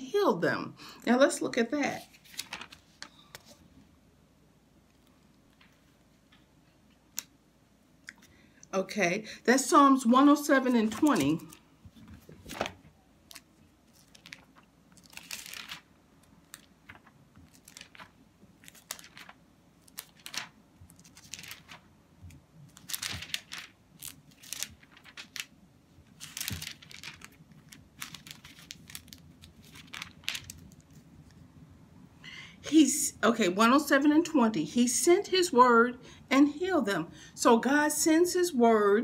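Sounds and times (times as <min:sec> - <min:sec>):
thin pages rustling: 0:02.0 - 0:03.6, 0:10.7 - 0:31.4.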